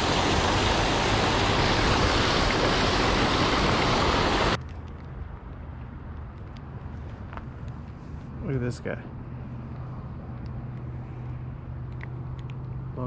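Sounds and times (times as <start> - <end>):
water pouring over weir: 0.0 - 4.6.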